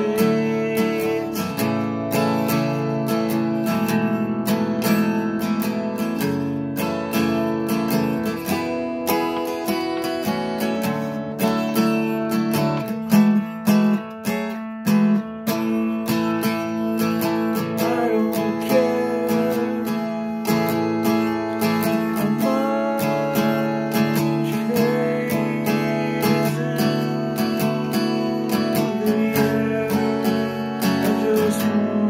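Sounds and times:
man singing: 0.0 - 4.1, 15.5 - 32.0
acoustic guitar strumming: 0.0 - 32.0.

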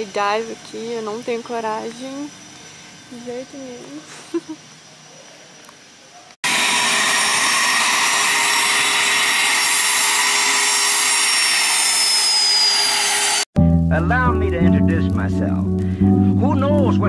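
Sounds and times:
jet engines whining: 0.0 - 4.8, 6.4 - 13.5.

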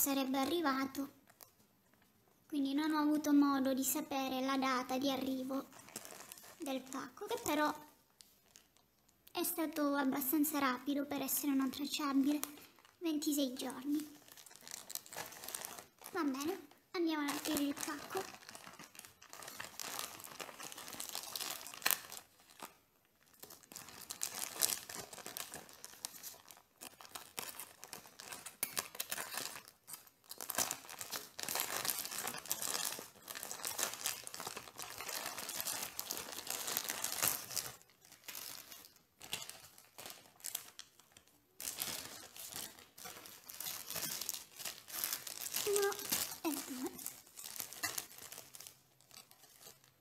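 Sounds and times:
plastic mailer tearing and crinkling: 5.2 - 7.6, 12.0 - 50.0.

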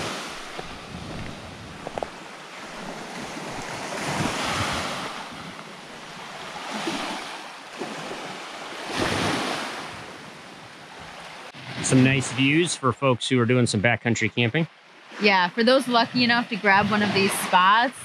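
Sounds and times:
waves washing onto pebble beach: 0.0 - 9.9.

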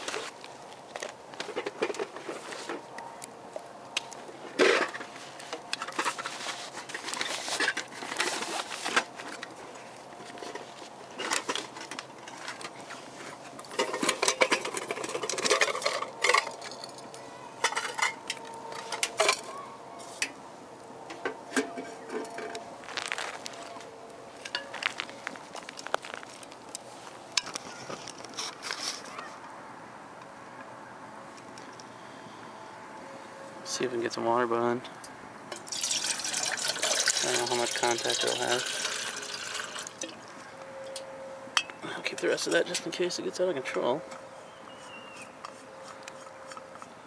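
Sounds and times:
wood fire crackling and popping: 0.0 - 2.2, 2.8 - 16.9, 22.5 - 29.1, 35.5 - 37.2, 38.5 - 40.3.

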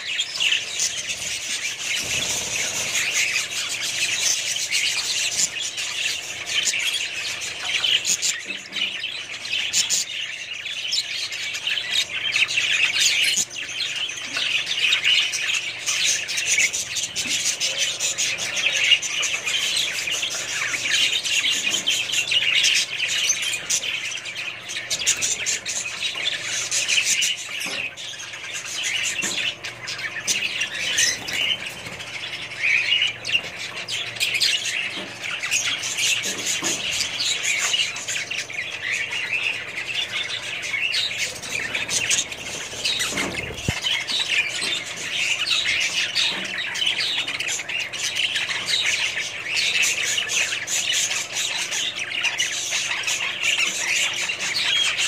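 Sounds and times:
budgerigars chattering: 0.0 - 55.0
wings fluttering: 1.1 - 4.7, 41.3 - 45.0.

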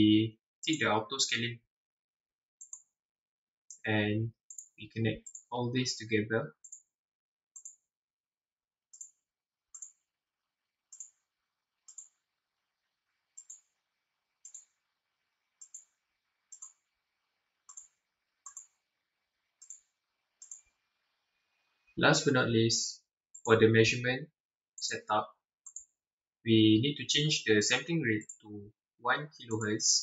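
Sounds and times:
computer mouse clicking: 2.6 - 2.9, 4.5 - 5.5, 6.6 - 6.9, 7.6 - 7.8, 8.9 - 10.0, 10.9 - 11.2, 11.8 - 12.2, 13.4 - 13.7, 14.4 - 14.8, 15.6 - 15.9, 16.5 - 16.9, 17.6 - 18.8, 19.6 - 20.8, 23.4 - 23.6, 25.7 - 25.9.

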